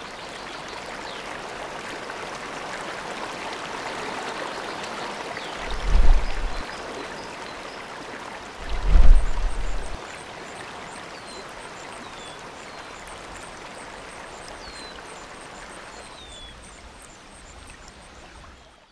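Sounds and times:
river rushing over boulders: 0:05.4 - 0:06.8, 0:08.4 - 0:10.0.

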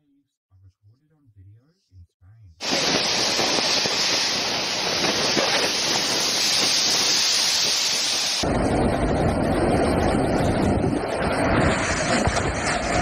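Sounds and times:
waves breaking over seawall: 0:02.6 - 0:13.0
wind buffeting microphone: 0:02.6 - 0:13.0.

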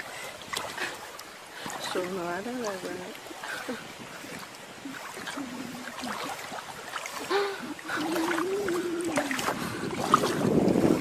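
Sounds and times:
water splashing: 0:00.0 - 0:11.0
long wavering vocal sound: 0:07.3 - 0:10.0.

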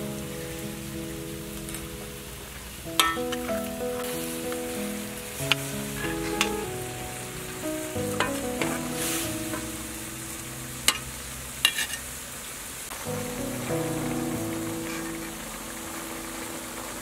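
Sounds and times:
soft background music: 0:00.0 - 0:11.8, 0:12.9 - 0:17.0
food sizzling: 0:00.0 - 0:17.0
metal spatula scraping a wok: 0:11.6 - 0:12.1.

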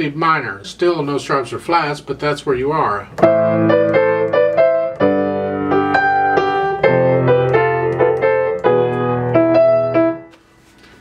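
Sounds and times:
grand piano playing: 0:03.2 - 0:10.4.

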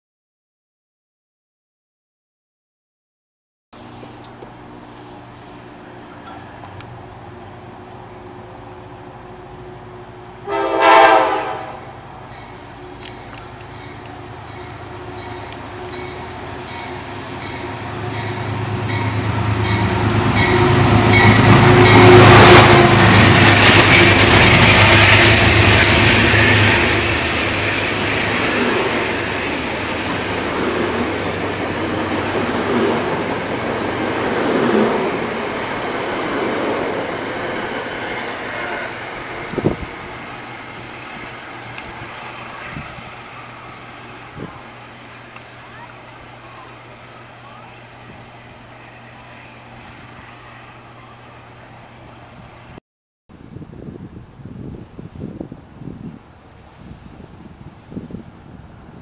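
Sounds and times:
train wheels rumbling on rails: 0:03.8 - 0:50.7
diesel locomotive engine hum: 0:03.8 - 0:52.8.

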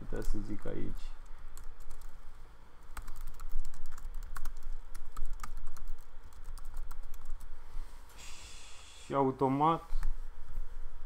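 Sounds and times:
laptop keyboard typing: 0:01.5 - 0:02.2, 0:02.8 - 0:07.5.

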